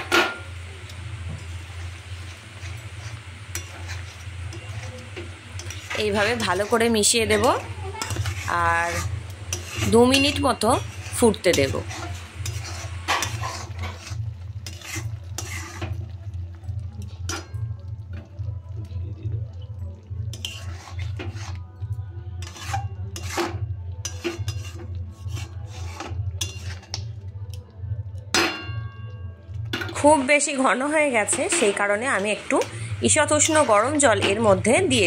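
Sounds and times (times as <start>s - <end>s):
steady low hum: 0.0s - 22.4s, 27.2s - 35.0s
spatula scraping metal pan: 1.8s - 16.1s, 20.3s - 21.6s, 22.4s - 27.0s, 31.1s - 35.0s.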